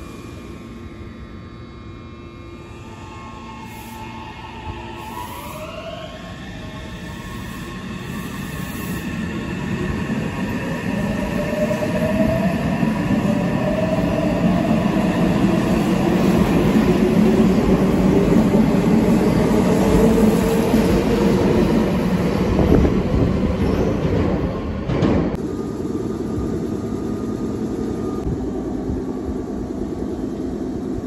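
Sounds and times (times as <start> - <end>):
train wheels rumbling on rail: 6.6 - 31.0.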